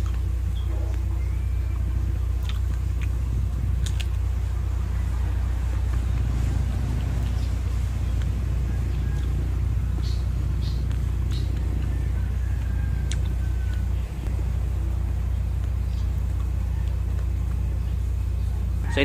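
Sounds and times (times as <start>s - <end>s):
steady low rumble: 0.0s - 19.0s
crisp chewing crunches: 2.4s - 4.2s.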